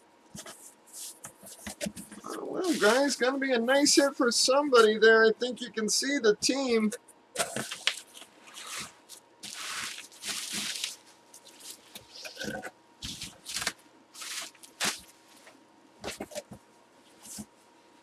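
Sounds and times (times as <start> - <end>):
bubble wrap crinkling: 7.4 - 12.4, 13.0 - 15.5.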